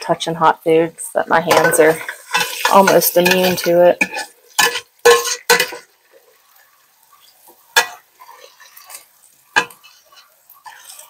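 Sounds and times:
spoon clattering against pot: 0:01.5 - 0:05.9, 0:07.8 - 0:08.9, 0:09.6 - 0:11.0.

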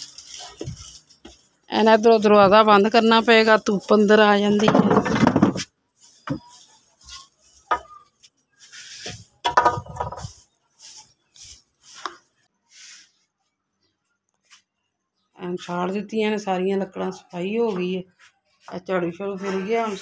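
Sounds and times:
light knocks scrapes and rustles: 0:00.0 - 0:01.7, 0:04.4 - 0:12.4.

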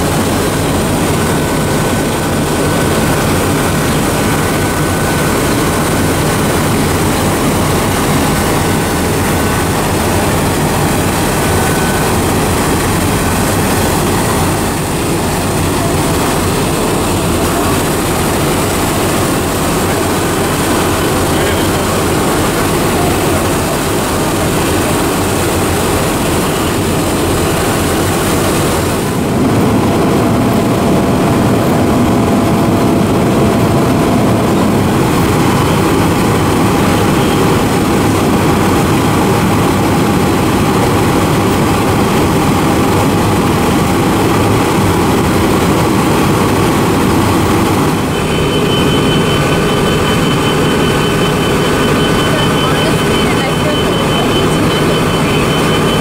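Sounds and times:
fire engine diesel engine running: 0:00.0 - 0:56.0
fire engine idling: 0:00.0 - 0:56.0.

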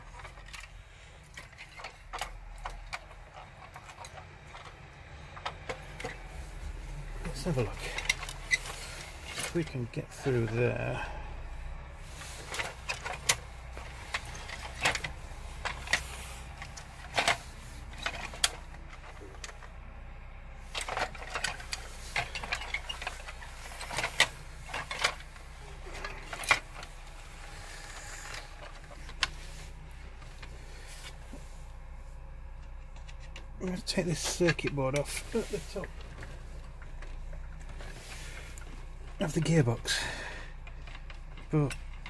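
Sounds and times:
hard plastic parts clicking: 0:00.0 - 0:10.9, 0:12.1 - 0:19.8, 0:20.7 - 0:31.4
steady low hum: 0:00.0 - 0:42.0.

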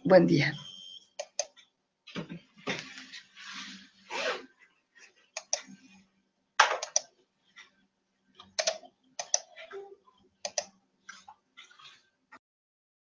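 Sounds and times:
keyboard typing: 0:01.2 - 0:01.6, 0:05.4 - 0:05.7, 0:06.6 - 0:07.1, 0:08.4 - 0:09.6, 0:10.4 - 0:10.7.

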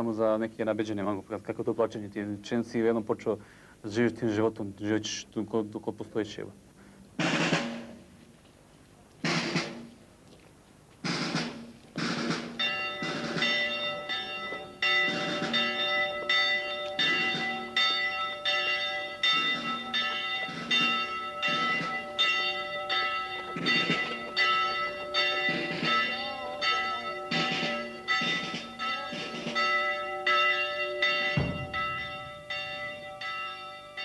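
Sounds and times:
church bells ringing: 0:12.0 - 0:34.0.

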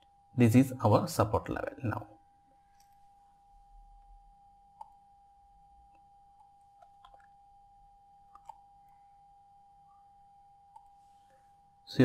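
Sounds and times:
faint electrical hum: 0:00.0 - 0:12.0
computer mouse clicks: 0:08.3 - 0:08.6.

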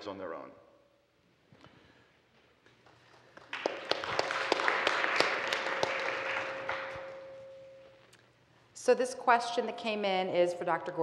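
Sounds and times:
audience applauding: 0:02.8 - 0:07.2.

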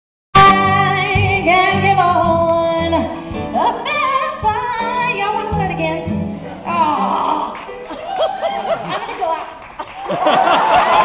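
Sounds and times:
woman singing with vibrato: 0:00.4 - 0:07.6
instrumental accompaniment: 0:00.4 - 0:08.4.

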